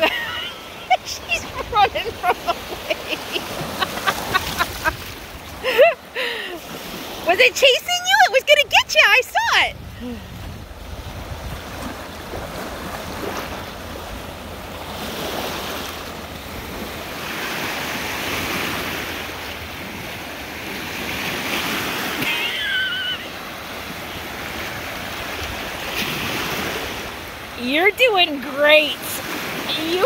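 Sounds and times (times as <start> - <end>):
waves washing on sandy shore: 0.0 - 30.0
wind rumbling on microphone: 9.4 - 15.6
short high warbling call: 22.2 - 23.3.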